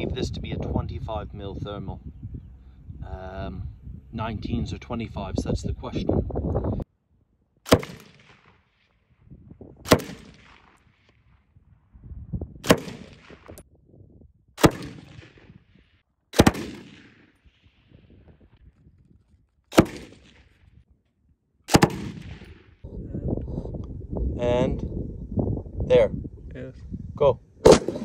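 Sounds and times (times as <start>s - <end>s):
machine gun single shots: 7.7s - 8.5s, 9.9s - 10.7s, 12.6s - 13.4s, 14.6s - 15.4s, 16.4s - 17.2s, 19.7s - 20.4s, 21.7s - 22.5s, 27.6s - 28.0s.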